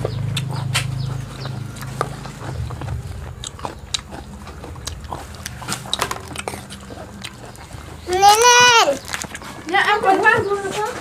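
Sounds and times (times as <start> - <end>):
low hum: 0.0 - 8.1
chewing and crunching: 0.0 - 11.0.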